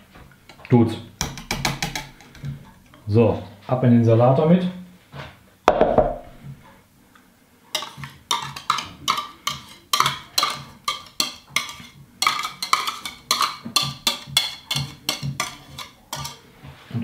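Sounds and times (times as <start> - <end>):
knock: 5.7 - 6.4.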